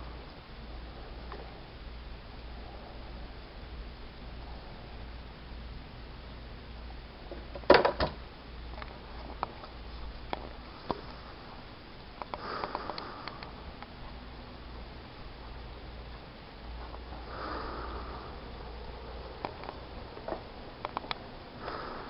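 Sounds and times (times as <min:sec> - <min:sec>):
low steady hum: 0:00.0 - 0:22.0
small clicks and rustles: 0:08.7 - 0:11.2, 0:19.4 - 0:21.2.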